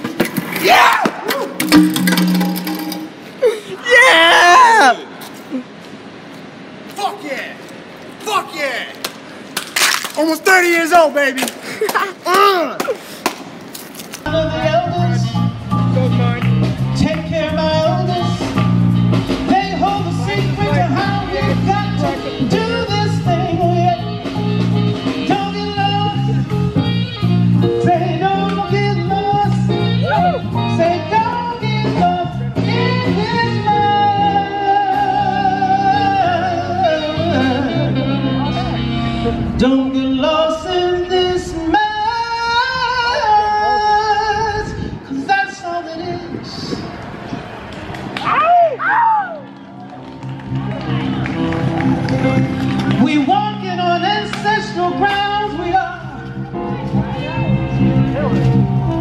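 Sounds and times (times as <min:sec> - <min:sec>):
live band playing: 0:00.0 - 0:03.4, 0:14.4 - 0:39.8, 0:49.7 - 0:59.0
steady bass line: 0:14.3 - 0:39.6, 0:49.6 - 0:59.0
blues guitar: 0:14.3 - 0:40.3, 0:49.6 - 0:59.0
person singing: 0:27.7 - 0:38.8.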